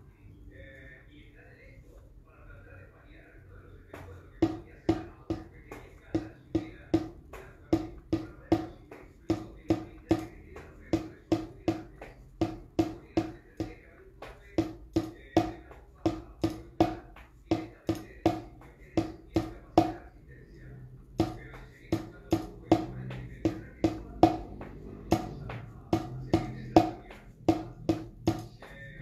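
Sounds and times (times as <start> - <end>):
drumstick strikes: 4.4 - 20.0, 21.2 - 29.0.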